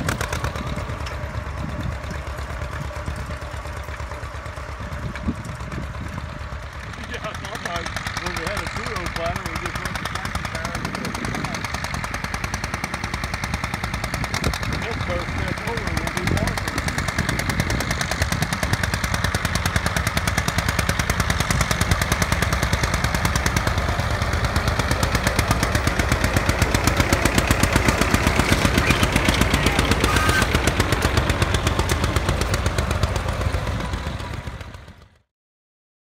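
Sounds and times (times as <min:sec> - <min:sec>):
tractor engine running under load: 0:00.0 - 0:35.3.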